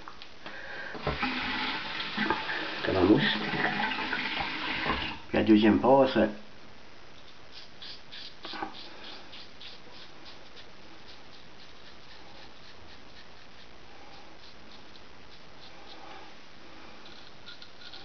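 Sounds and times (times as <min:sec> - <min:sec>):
razor scraping stubble: 0:07.2 - 0:18.0.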